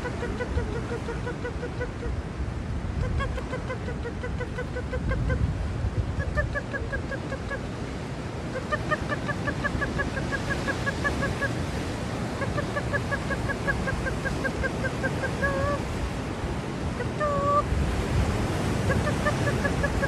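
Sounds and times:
gull calling: 0.0s - 2.2s, 3.0s - 5.5s, 6.2s - 7.8s, 8.5s - 16.0s, 17.0s - 17.7s, 18.6s - 20.0s
wind: 0.0s - 20.0s.

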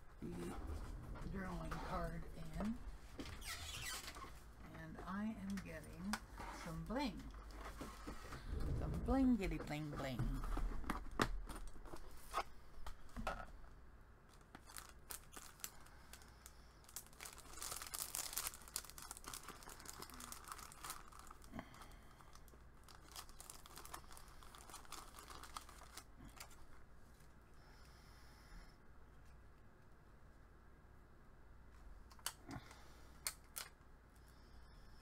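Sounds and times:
plastic packets crinkling: 14.3s - 26.8s
pearls peeled off a sheet: 16.8s - 26.7s.

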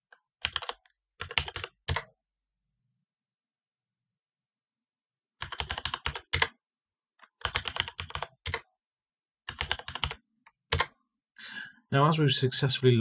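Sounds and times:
keyboard typing: 0.4s - 2.2s, 5.4s - 6.6s, 7.2s - 8.7s, 9.5s - 11.0s.

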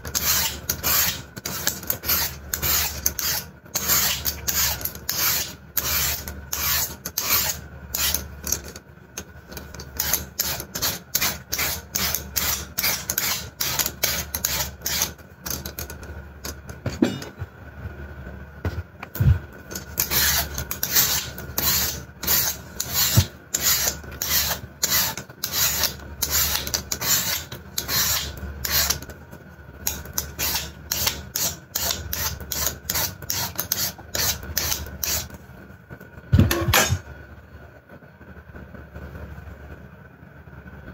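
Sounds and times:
peeler scraping sweet potato: 0.0s - 8.8s, 9.5s - 16.6s, 19.7s - 29.1s, 29.8s - 35.3s.

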